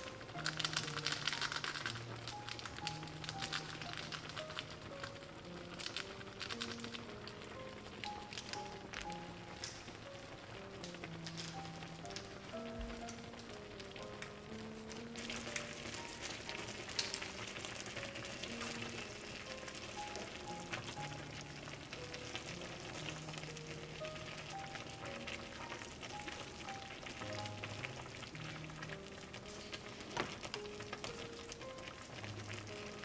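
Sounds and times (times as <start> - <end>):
broth boiling in a pot: 0.0 - 33.0
soft background music: 0.0 - 33.0.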